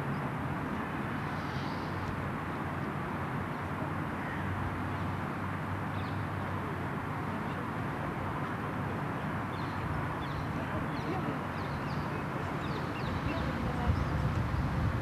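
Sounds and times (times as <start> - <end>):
even hiss: 1.1 - 2.2.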